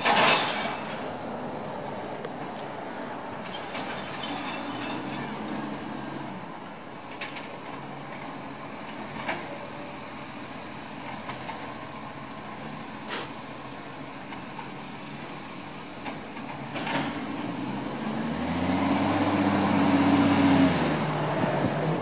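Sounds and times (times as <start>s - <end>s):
diesel truck engine running: 0.0s - 22.0s
sharp clicks and hisses: 13.0s - 13.4s.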